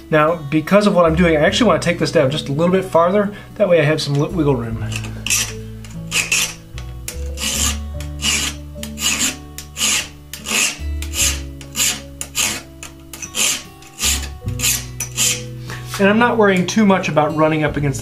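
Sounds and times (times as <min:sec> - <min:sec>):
background music: 0:00.0 - 0:18.0
file rasping on steel: 0:04.8 - 0:15.6.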